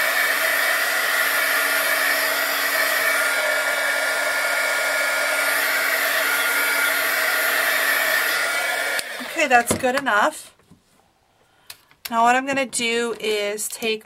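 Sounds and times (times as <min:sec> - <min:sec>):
heat gun blowing air: 0:00.0 - 0:09.7.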